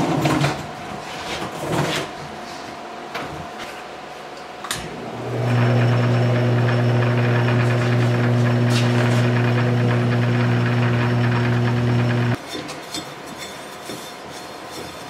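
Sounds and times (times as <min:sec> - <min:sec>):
lathe motor humming: 0:04.9 - 0:12.4.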